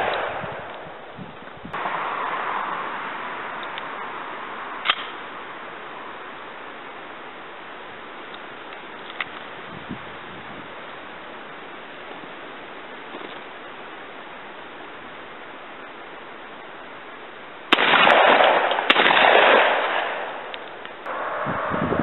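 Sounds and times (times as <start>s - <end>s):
shotgun blasts: 0.0s - 0.9s, 17.7s - 20.6s
outdoor hiss: 0.0s - 21.6s.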